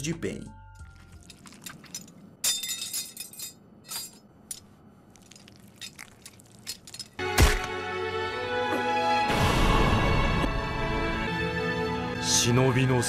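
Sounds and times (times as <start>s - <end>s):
metal weapons clinking: 1.0s - 4.7s, 5.3s - 7.5s.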